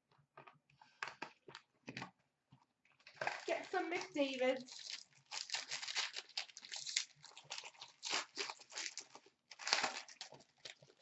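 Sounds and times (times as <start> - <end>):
foil pack tearing and crinkling: 3.2 - 11.0.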